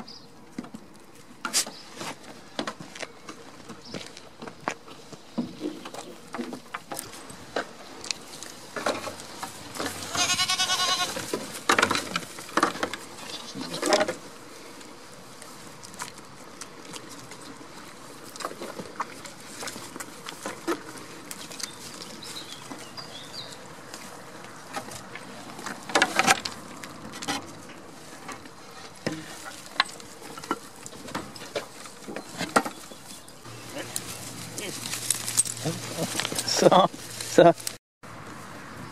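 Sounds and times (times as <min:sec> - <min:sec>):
clicks and rustles: 0:00.5 - 0:37.8
goat bleating: 0:09.8 - 0:11.2, 0:13.2 - 0:13.9.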